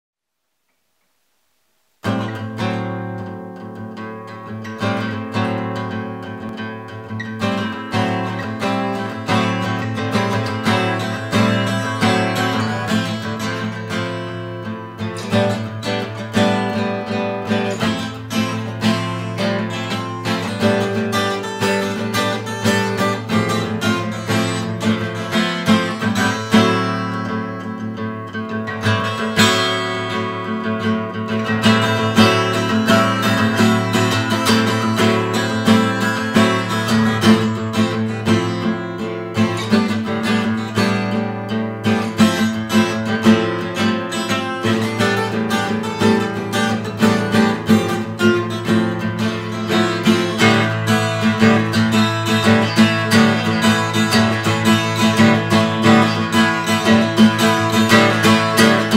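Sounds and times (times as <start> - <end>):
acoustic guitar plucked notes: 2.0 - 58.9.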